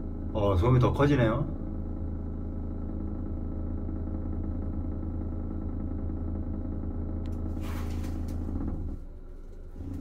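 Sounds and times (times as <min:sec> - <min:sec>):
exhaust fan droning: 0:00.0 - 0:10.0
rustle of hand on panel: 0:07.6 - 0:08.4.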